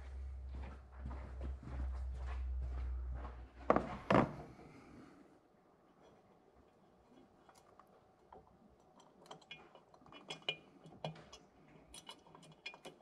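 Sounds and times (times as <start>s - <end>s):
small metal clicks and taps: 7.1s - 13.0s.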